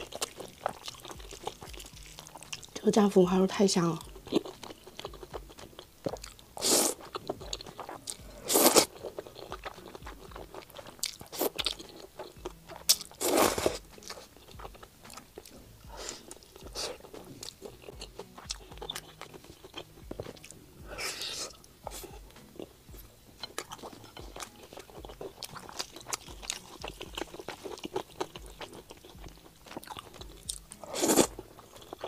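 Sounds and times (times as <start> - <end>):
wet chewing and smacking: 0.0 - 2.9, 3.8 - 32.0
noodles slurped: 6.1 - 14.3, 23.7 - 32.0.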